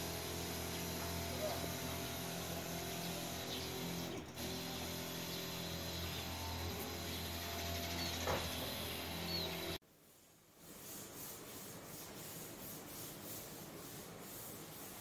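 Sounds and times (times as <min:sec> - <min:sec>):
sprayer motor hum: 0:00.0 - 0:09.8.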